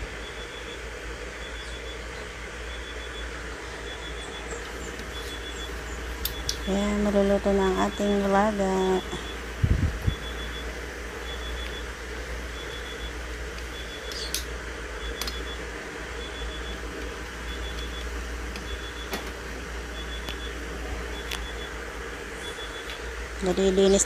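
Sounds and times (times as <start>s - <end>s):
soft clicks: 13.5s - 14.5s.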